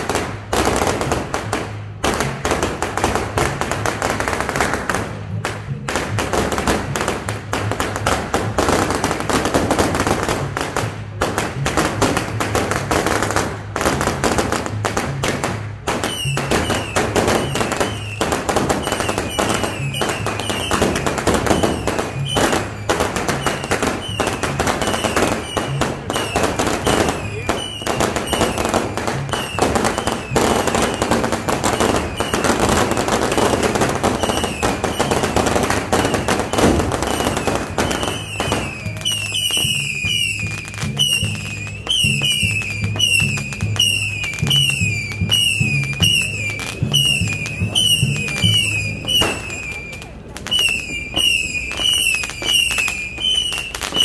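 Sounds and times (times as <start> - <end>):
firecrackers crackling: 0.0 - 54.0
music playing: 0.0 - 54.0.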